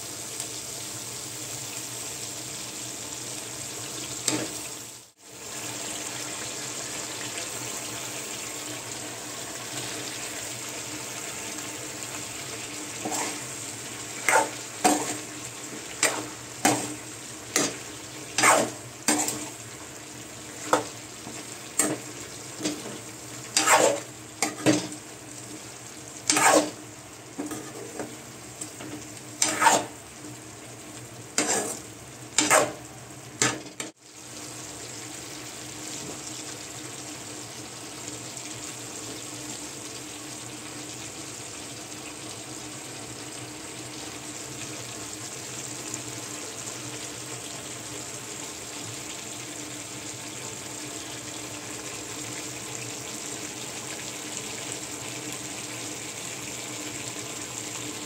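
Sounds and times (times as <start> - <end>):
food sizzling in a pan: 0.0 - 58.0
spoon scraping a pan: 13.0 - 13.5, 14.1 - 19.6, 20.6 - 25.0, 26.3 - 26.8, 28.8 - 30.0, 31.4 - 32.8.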